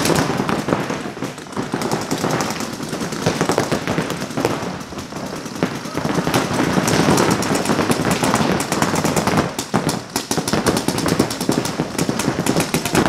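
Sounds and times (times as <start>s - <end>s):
paintball markers firing: 6.8s - 13.0s.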